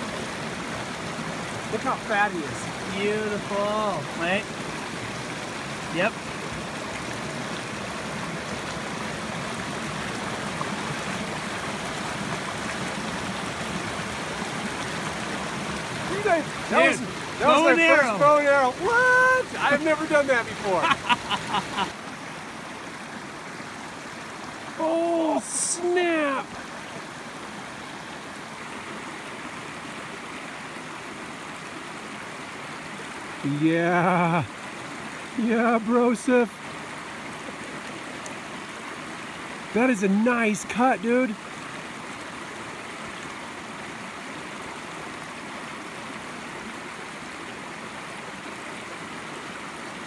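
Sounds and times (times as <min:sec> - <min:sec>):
creek rushing over rocks: 0:00.0 - 0:50.0.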